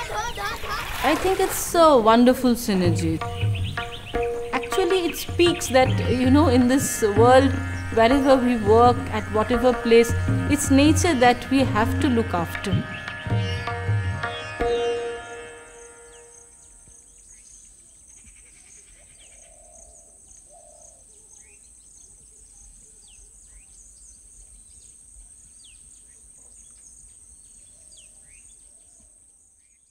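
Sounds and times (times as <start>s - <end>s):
plucked-string music: 2.6s - 16.6s
bird chirping: 2.7s - 29.9s
high-pitched insect drone: 5.5s - 13.2s.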